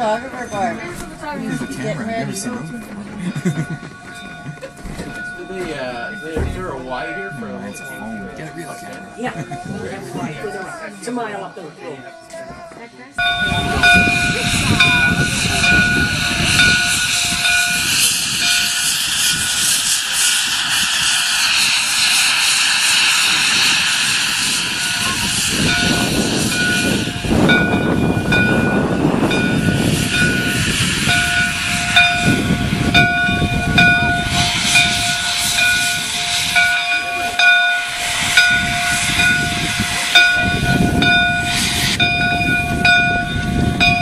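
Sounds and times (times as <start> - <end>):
steam locomotive running: 0.0 - 44.0
steady steam hiss: 13.3 - 44.0.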